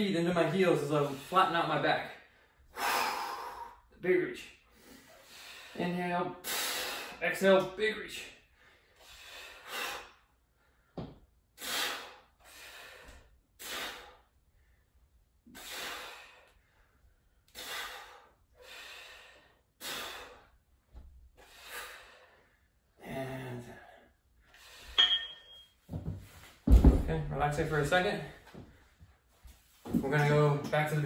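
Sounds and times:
person breathing heavily: 0:02.2 - 0:03.9, 0:08.4 - 0:11.0, 0:11.6 - 0:14.9, 0:15.5 - 0:20.6, 0:21.3 - 0:25.0.

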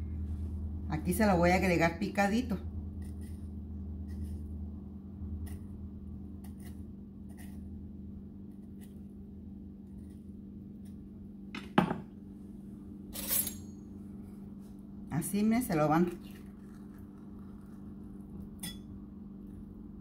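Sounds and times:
steady low hum: 0:00.0 - 0:20.0
knife scraping avocado: 0:02.9 - 0:04.6, 0:05.4 - 0:07.8.

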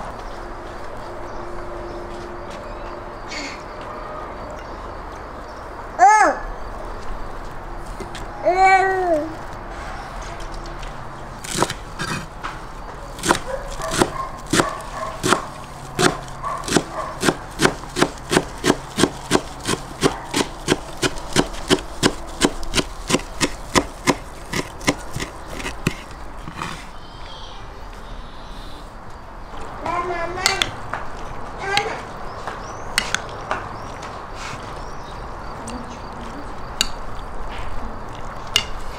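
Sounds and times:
knife chopping on wooden board: 0:11.4 - 0:12.3, 0:13.2 - 0:26.9.

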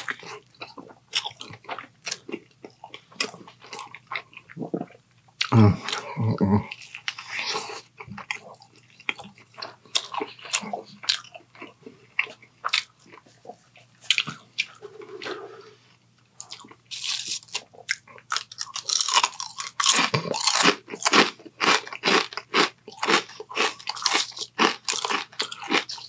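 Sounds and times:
biting and chewing: 0:16.4 - 0:26.0.

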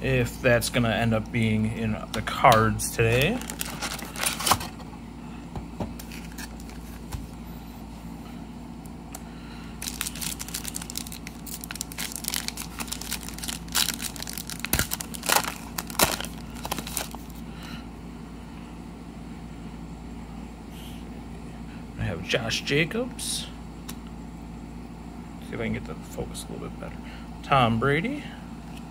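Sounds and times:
foil wrapper crinkling: 0:02.9 - 0:04.8, 0:06.0 - 0:07.0, 0:09.8 - 0:17.4.

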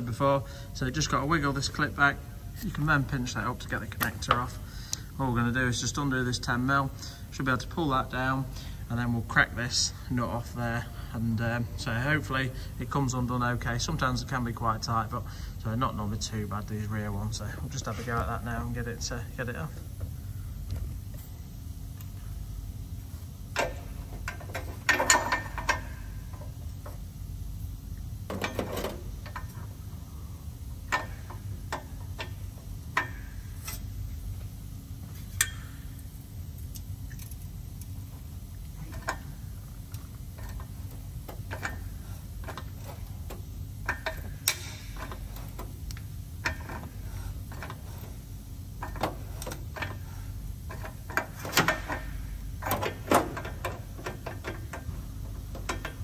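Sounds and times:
steady low hum: 0:00.0 - 0:56.0
metallic clicks of ratchet spanner: 0:35.4 - 0:38.0.

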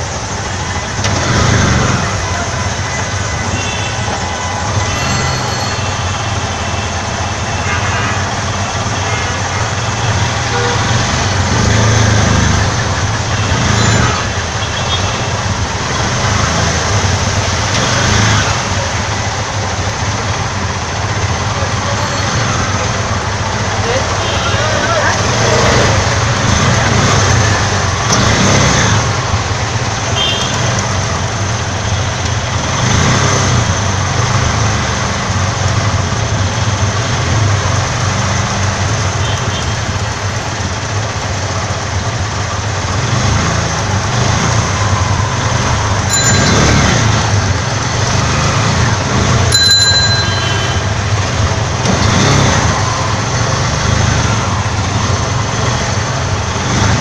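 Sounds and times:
auto-rickshaw engine running: 0:00.0 - 0:57.0
road and water noise: 0:00.0 - 0:57.0
short high-pitched tones: 0:46.1 - 0:47.3, 0:49.5 - 0:51.2.

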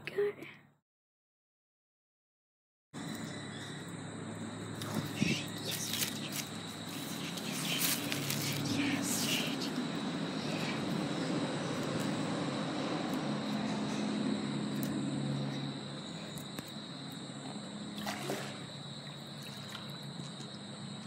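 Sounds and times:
creek water trickling: 0:03.0 - 0:14.0, 0:16.0 - 0:21.0.

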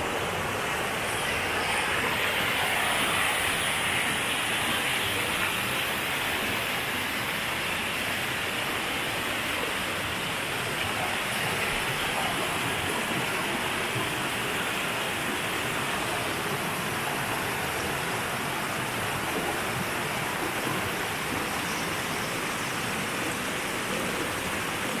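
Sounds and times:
stream rushing over rocks: 0:00.0 - 0:25.0.

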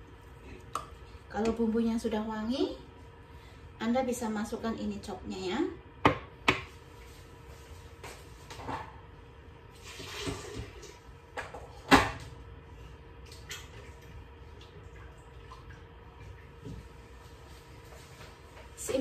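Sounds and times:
kitchen knocks and clatters: 0:10.0 - 0:12.3.

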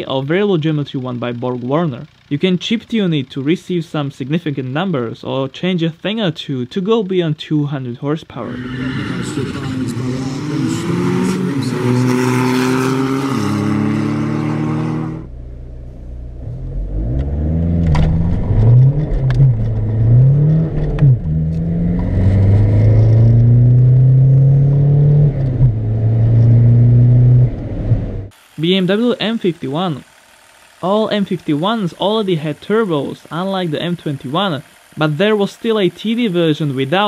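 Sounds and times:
car engine accelerating: 0:08.3 - 0:37.0.

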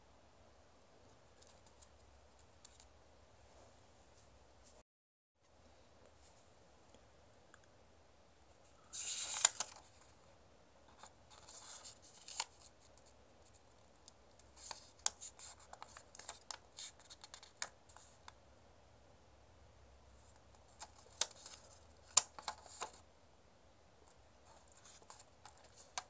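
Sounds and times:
paper crinkling and rustling: 0:08.9 - 0:10.1, 0:10.9 - 0:12.9, 0:20.6 - 0:23.0.

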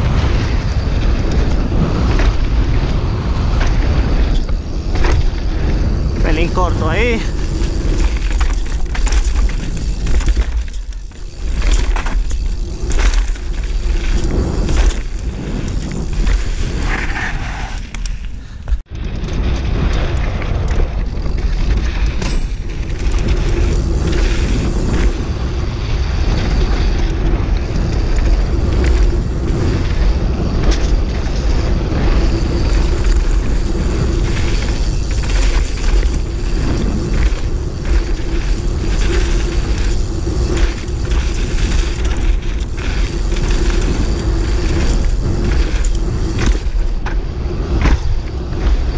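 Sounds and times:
bike rattling over bumps: 0:00.0 - 0:48.9
tyres rolling on dirt trail: 0:00.0 - 0:48.9
wind buffeting microphone: 0:00.0 - 0:48.9.

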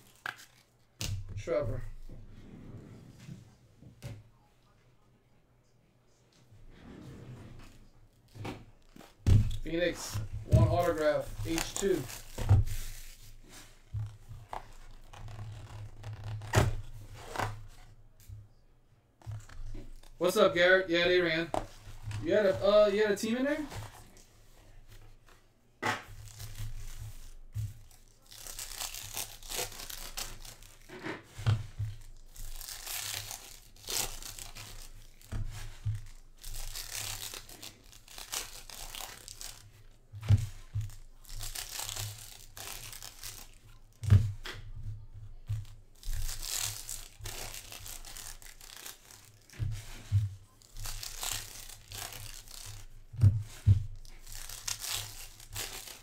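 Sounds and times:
foil packs tearing and crinkling: 0:09.5 - 0:13.7, 0:26.2 - 0:31.0, 0:32.0 - 0:44.4, 0:46.0 - 0:56.0.

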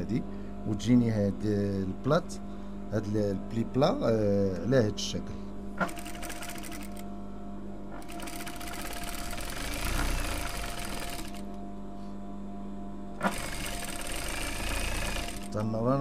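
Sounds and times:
sewing machine hum: 0:05.8 - 0:07.0, 0:07.9 - 0:11.6, 0:13.2 - 0:15.9
sewing machine stitching: 0:05.8 - 0:07.0, 0:08.0 - 0:11.5, 0:13.2 - 0:15.7.

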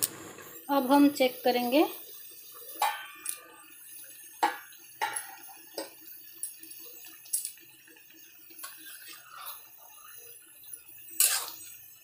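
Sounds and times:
metal kitchenware clinking: 0:02.8 - 0:03.5, 0:04.4 - 0:05.9.

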